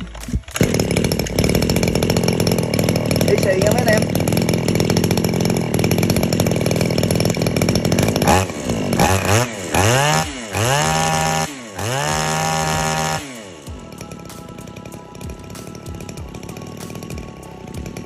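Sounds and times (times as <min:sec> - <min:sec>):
brush cutter engine idling: 0:00.0 - 0:18.0
brush cutter engine revving: 0:00.0 - 0:18.0.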